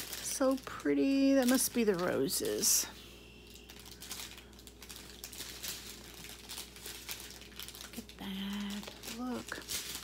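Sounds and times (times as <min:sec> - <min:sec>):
plastic bags crinkling: 0:00.0 - 0:10.0.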